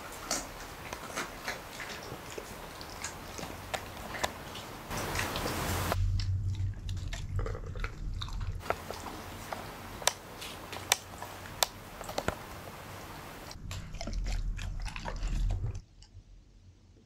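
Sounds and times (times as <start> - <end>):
sharp clicks in chewing: 0.0 - 5.5, 6.2 - 12.4
dog chewing meat: 0.0 - 15.9.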